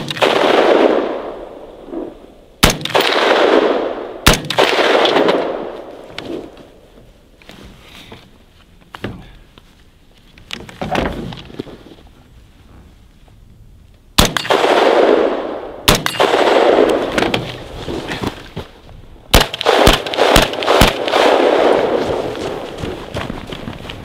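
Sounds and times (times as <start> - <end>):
rifle shots: 0.0 - 6.5, 14.2 - 17.3, 19.3 - 22.7.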